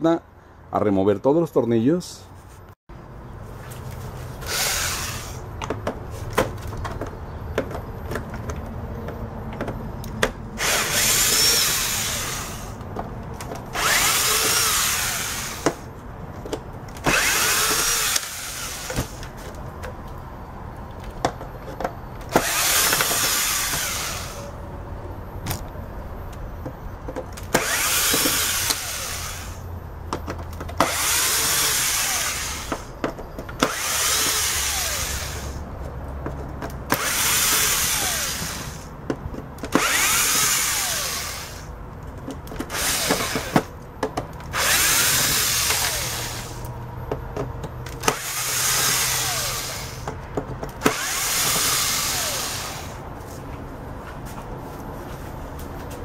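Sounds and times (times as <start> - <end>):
power drill running: 4.4 - 5.4, 10.6 - 12.8, 13.7 - 15.8, 17.0 - 19.2, 22.3 - 24.5, 27.5 - 29.6, 30.8 - 32.9, 33.6 - 35.6, 36.9 - 38.9, 39.7 - 41.7, 42.6 - 43.7, 44.5 - 46.7, 48.0 - 50.1, 50.8 - 53.0.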